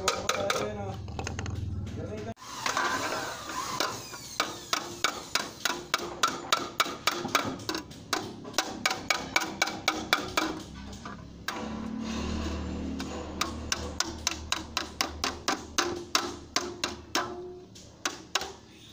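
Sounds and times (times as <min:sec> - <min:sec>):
hammer tapping sheet metal: 0:00.0 - 0:00.8, 0:04.4 - 0:18.6.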